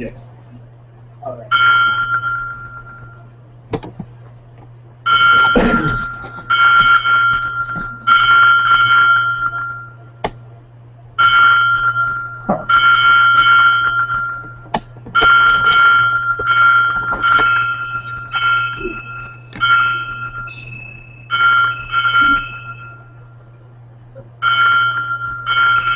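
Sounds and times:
steady low hum: 0.0s - 25.9s
synthesized bell-like chimes: 1.5s - 3.2s, 5.1s - 10.0s, 15.4s - 23.4s, 24.5s - 25.9s.

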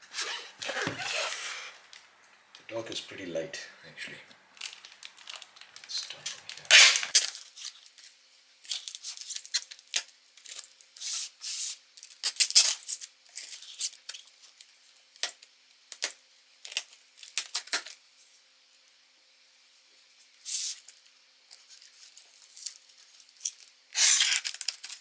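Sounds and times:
knife slicing packing tape: 6.7s - 7.8s, 11.0s - 14.2s, 23.9s - 25.0s.

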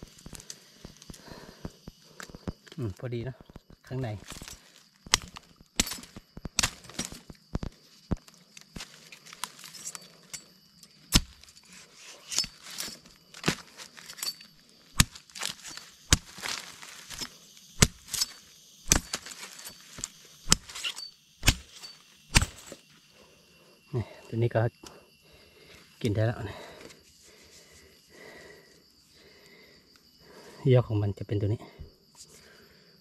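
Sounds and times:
plant fibre snapping: 4.2s - 9.5s, 15.0s - 22.8s
blade chopping plant stem: 5.1s - 7.7s, 11.1s - 11.4s, 15.0s - 22.8s.

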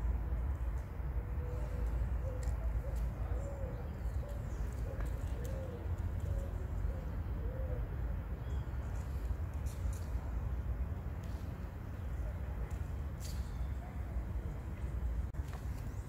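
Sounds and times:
dove cooing: 1.4s - 7.9s.

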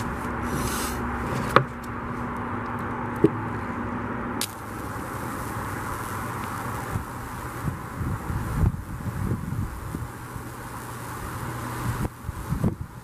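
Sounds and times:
steady electrical hum: 0.0s - 13.0s
sharp electrical snaps: 4.4s - 13.0s.

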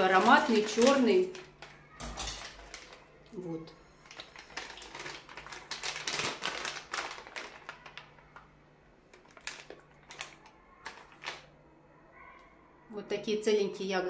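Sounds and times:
foil pouch crinkling: 0.0s - 3.1s, 3.9s - 8.5s, 9.1s - 11.5s.

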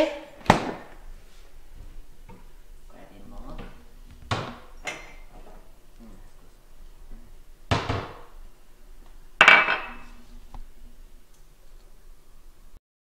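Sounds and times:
cabinet doors opening: 3.4s - 5.7s
objects knocking on countertop: 7.7s - 8.3s.

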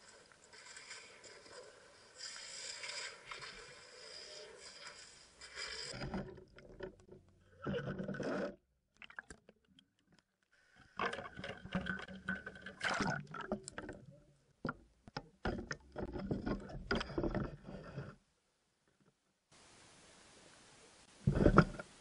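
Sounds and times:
scraping knocks and clicks: 14.6s - 18.2s, 21.3s - 21.9s.

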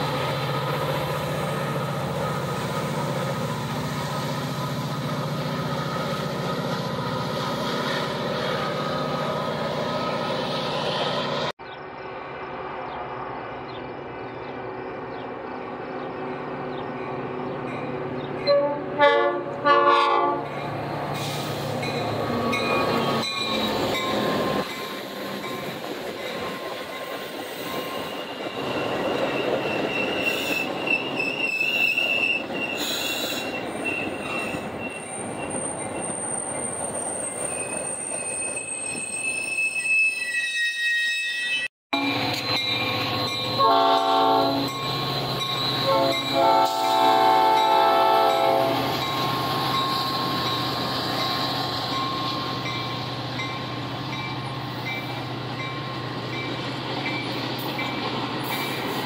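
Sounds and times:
diesel locomotive droning: 0.0s - 40.4s, 41.4s - 59.0s
train coaches rolling past: 0.0s - 59.0s
train horn blasts: 18.4s - 20.6s, 41.9s - 42.4s, 43.4s - 49.0s
train wheels squealing: 21.2s - 59.0s.

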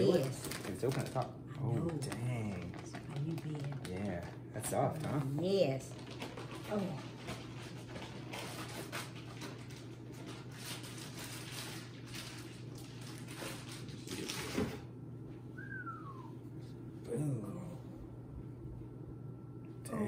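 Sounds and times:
steady low hum: 0.0s - 20.0s
short high falling whine: 15.5s - 16.5s.

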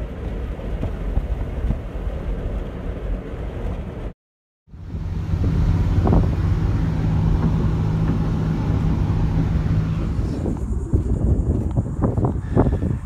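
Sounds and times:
car engine and tyre drone: 4.7s - 13.0s.

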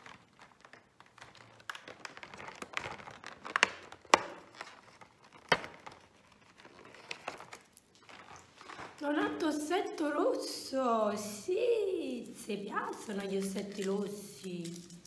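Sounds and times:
foil and cardboard crinkling: 0.0s - 9.5s, 12.8s - 15.0s.

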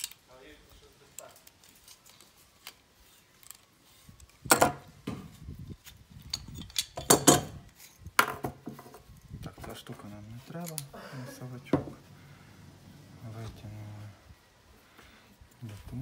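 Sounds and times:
metal tools clicking and scraping: 0.0s - 0.3s, 1.1s - 4.8s, 5.7s - 8.0s, 9.8s - 11.0s.

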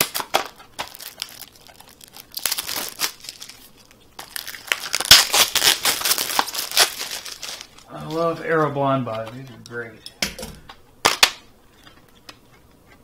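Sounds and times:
plastic wrap crinkling and tearing: 0.0s - 8.8s.

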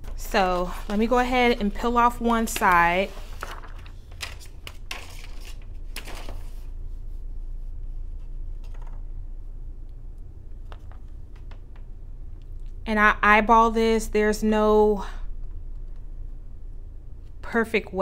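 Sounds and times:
paper rustling: 0.0s - 6.7s
steady low hum: 0.0s - 18.0s.

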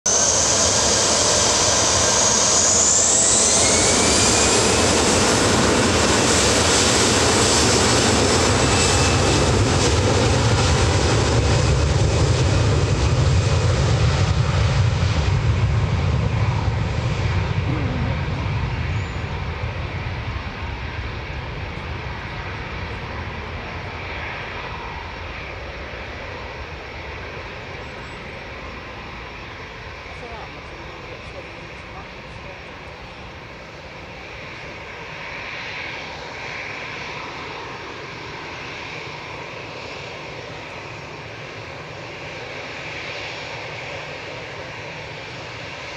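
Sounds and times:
jet engines spooling up: 0.1s - 23.2s
rising engine whine: 0.1s - 25.2s
jet takeoff roar: 0.1s - 45.9s.

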